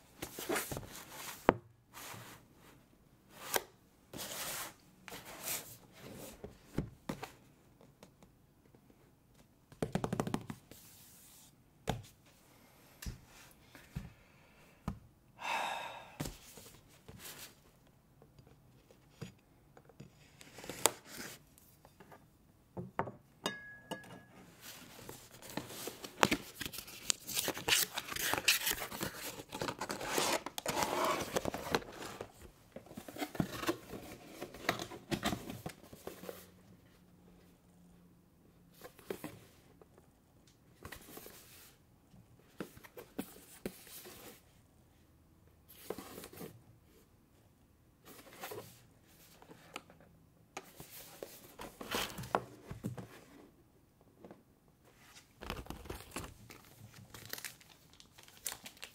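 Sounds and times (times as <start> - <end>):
plastic crinkling and rustling: 55.3 - 58.9.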